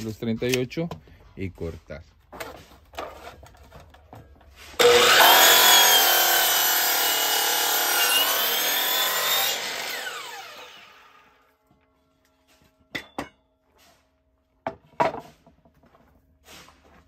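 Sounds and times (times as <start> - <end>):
miter saw cutting board: 4.8 - 11.5
saw blade winding down: 4.8 - 11.5.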